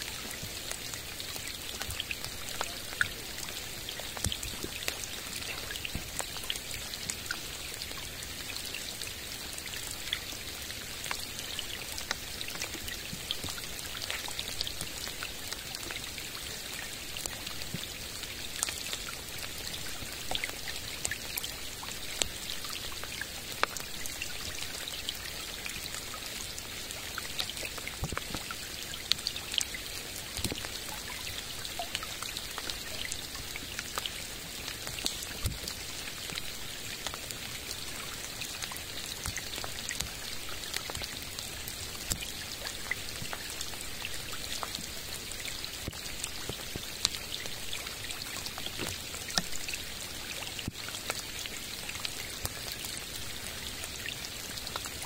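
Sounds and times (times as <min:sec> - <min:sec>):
rain hissing on water: 0:00.0 - 0:55.0.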